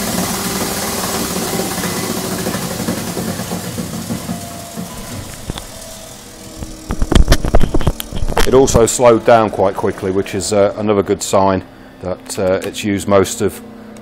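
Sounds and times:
granulator running down hum: 0.0s - 14.0s.

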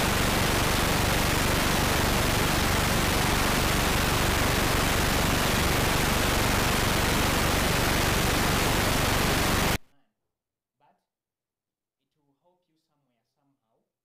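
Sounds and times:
loud static hiss: 0.0s - 9.8s.

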